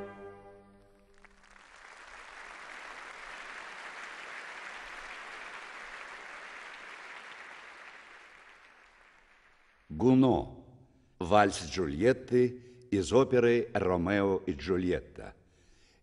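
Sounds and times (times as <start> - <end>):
orchestra final chord: 0.0 - 0.9
audience applauding: 0.9 - 9.9.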